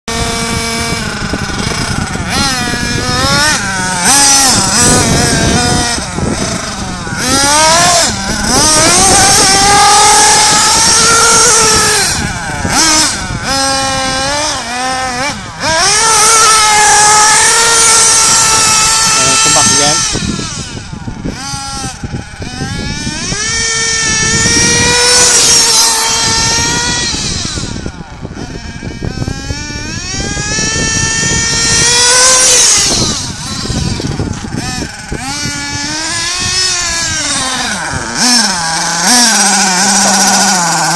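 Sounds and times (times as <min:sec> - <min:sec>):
nitro engine high-pitched buzz: 0:00.0 - 0:40.9.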